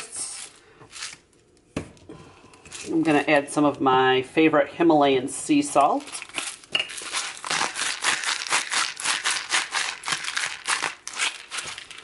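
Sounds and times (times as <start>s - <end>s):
salt grinder crunching: 0.3s - 1.2s, 6.0s - 12.0s.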